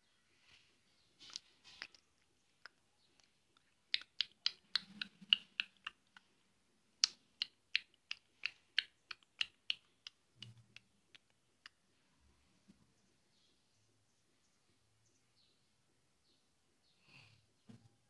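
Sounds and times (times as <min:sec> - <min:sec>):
sharp snapping clicks: 0:07.0 - 0:11.8.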